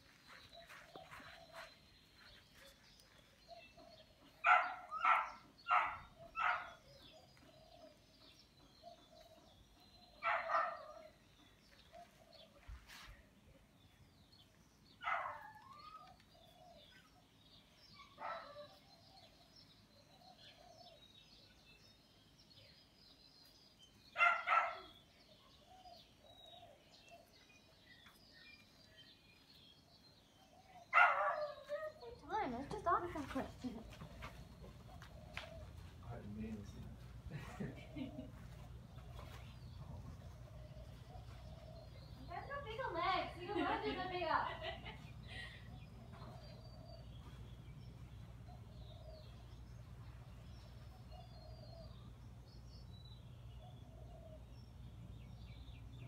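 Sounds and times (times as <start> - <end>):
dog barking: 4.4 - 6.9, 10.2 - 11.2, 18.0 - 18.8, 24.2 - 25.0, 30.9 - 31.7.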